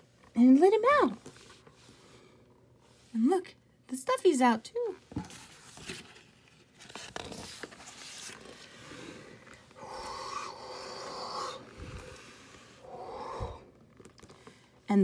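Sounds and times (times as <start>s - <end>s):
book pages turning: 5.1s - 9.8s, 13.8s - 14.7s.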